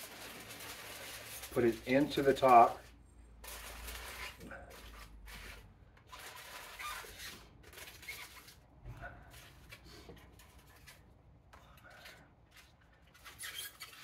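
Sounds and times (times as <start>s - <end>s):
aluminum foil crinkling: 0.0s - 11.1s.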